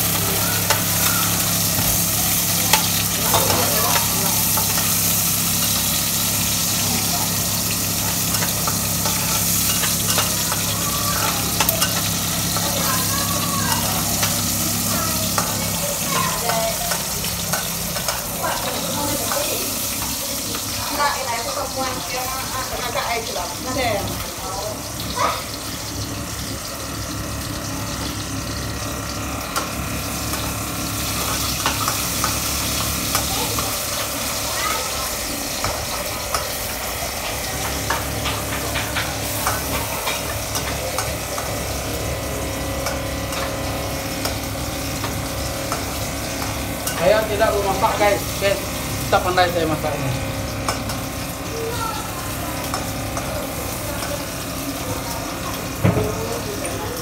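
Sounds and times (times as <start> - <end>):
spatula stirring: 0.0 - 21.1
hot oil sizzling in a wok: 0.0 - 57.0.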